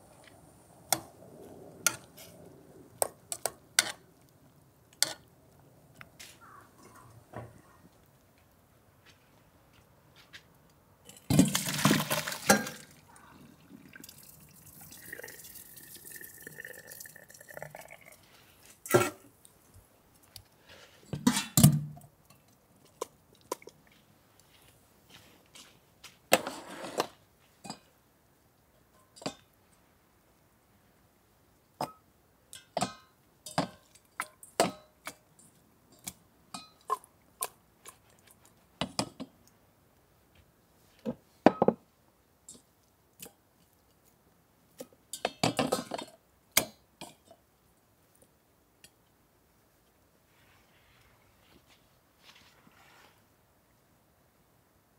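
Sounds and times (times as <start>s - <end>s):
water splashing in metal pot: 11.2s - 13.0s, 13.8s - 18.2s
dishes and utensils clinking: 45.2s - 46.2s.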